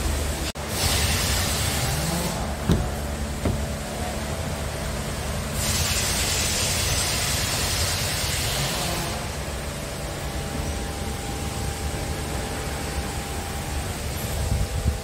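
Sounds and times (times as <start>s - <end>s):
diesel engine idling: 0.0s - 8.2s.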